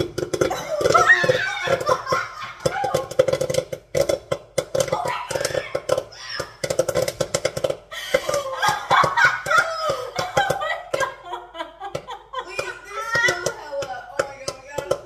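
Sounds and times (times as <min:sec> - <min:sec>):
popcorn popping in a pot: 0:00.0 - 0:15.0
loud laughter: 0:00.5 - 0:03.2, 0:08.0 - 0:13.3.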